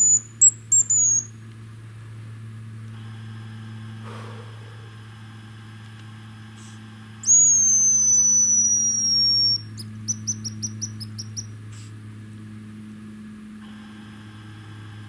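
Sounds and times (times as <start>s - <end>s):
high-pitched decoy whistle: 0.0s - 1.3s, 7.2s - 11.5s
short high whistle notes: 7.2s - 9.6s.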